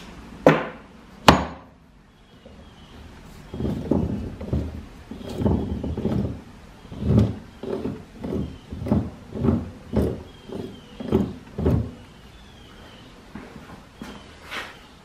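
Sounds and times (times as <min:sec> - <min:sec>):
faint squeaks: 0:02.1 - 0:15.0.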